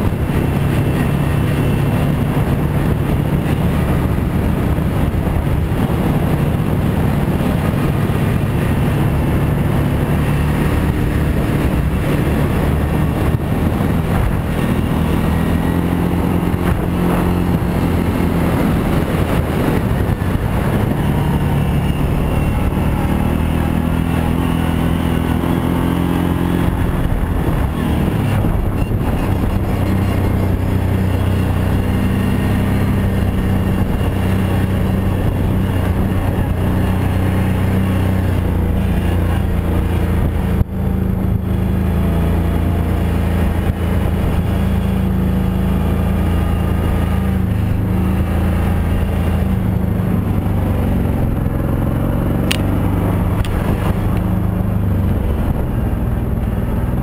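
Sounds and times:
atv engine revving: 0.0s - 57.0s.

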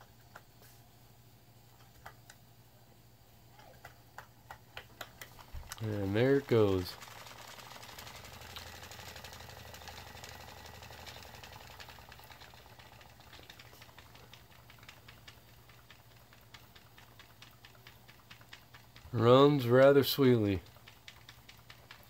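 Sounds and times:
low steady hum: 0.0s - 22.0s
model steam engine ticking: 5.4s - 22.0s.

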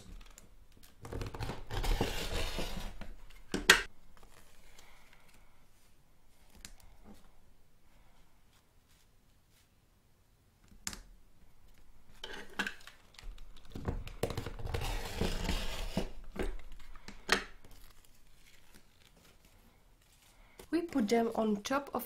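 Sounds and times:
fabric rustling: 8.0s - 9.8s.

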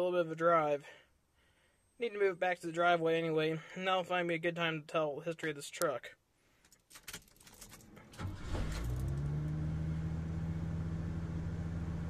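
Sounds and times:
engine cranking and idling: 7.8s - 10.3s.

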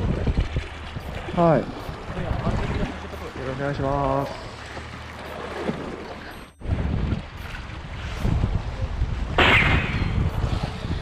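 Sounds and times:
wind buffeting microphone: 0.0s - 4.4s, 6.6s - 11.0s
choppy sea against rocks: 0.0s - 11.0s.

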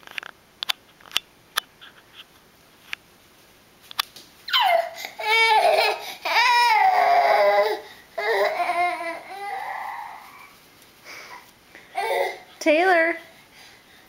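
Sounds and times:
toddler crying: 4.5s - 10.6s, 11.3s - 12.5s.

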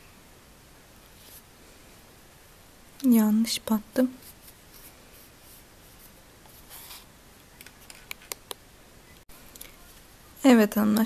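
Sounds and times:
soft rustle of yarn: 0.9s - 2.1s, 3.9s - 7.1s.

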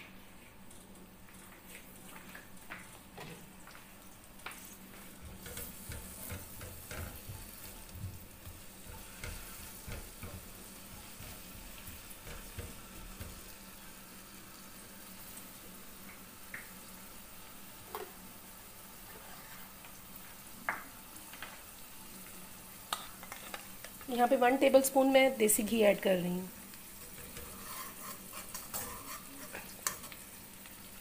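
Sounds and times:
garlic sizzling in frying pan: 0.0s - 31.0s
spatula scraping and knocking pan: 4.5s - 13.5s, 27.0s - 30.2s.

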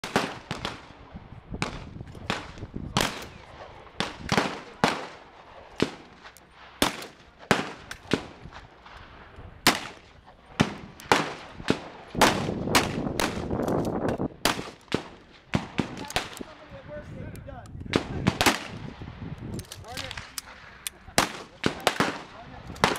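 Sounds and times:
revolver gunshots: 0.0s - 1.0s, 1.6s - 13.7s, 14.4s - 16.6s, 17.9s - 19.0s, 19.9s - 22.9s
other gunshots: 1.6s - 9.0s, 9.6s - 13.5s, 17.9s - 18.8s, 21.2s - 22.9s.

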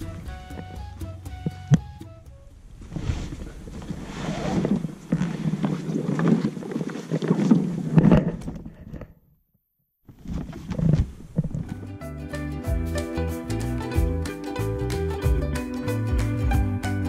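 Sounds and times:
vinyl cover rustling and flapping: 0.0s - 9.1s, 10.1s - 11.9s.

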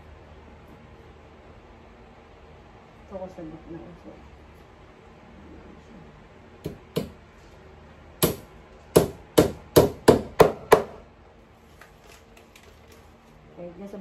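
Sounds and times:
hammer hitting nail into board: 8.2s - 11.0s.

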